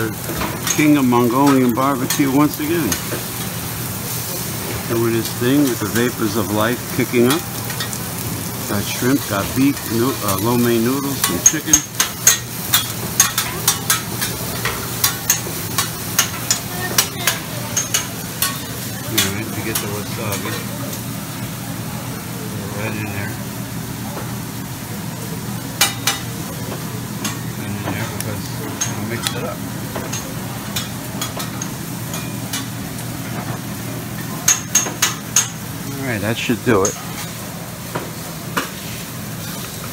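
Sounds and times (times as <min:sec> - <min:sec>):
meat and noodles sizzling: 0:00.0 - 0:39.9
metal spatulas clacking on griddle: 0:11.2 - 0:18.6.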